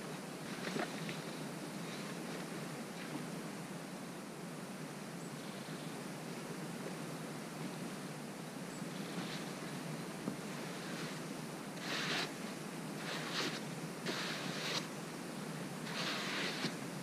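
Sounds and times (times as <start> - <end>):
steady background hiss: 0.0 - 17.0
snow brushed and scraped by hand: 8.9 - 17.0.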